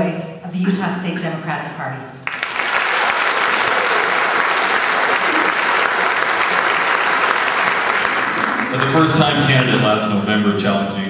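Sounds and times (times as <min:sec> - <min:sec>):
audience applauding: 0:02.2 - 0:10.2.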